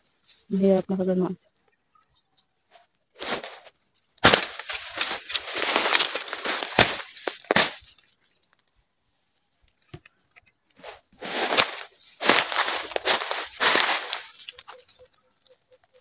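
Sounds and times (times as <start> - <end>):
bamboo and undergrowth rustling: 2.7 - 16.0
sharp snapping cracks: 4.2 - 8.7.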